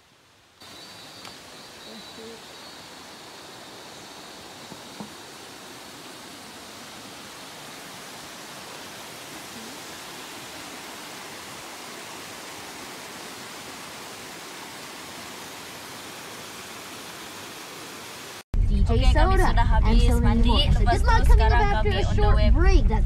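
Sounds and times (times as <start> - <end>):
waterfall rushing: 0.6 - 18.4.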